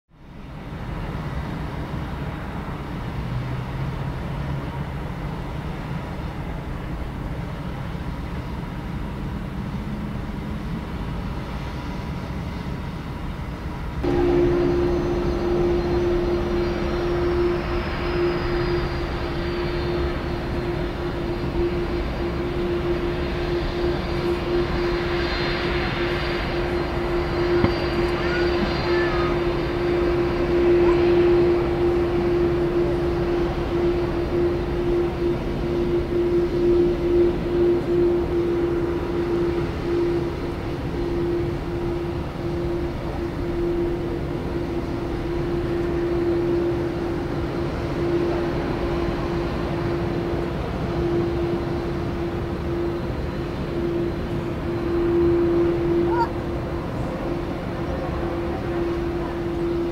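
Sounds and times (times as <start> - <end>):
jet engines rumbling and whining: 0.1 - 59.9.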